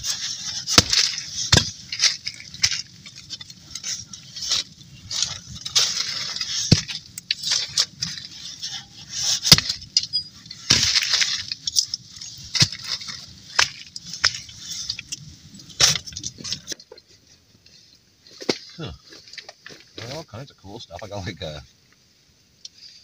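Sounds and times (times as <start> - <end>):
rustling and crackle: 0.0 - 23.0
hatchet chopping wood: 0.7 - 1.8, 9.4 - 9.8, 10.7 - 11.1.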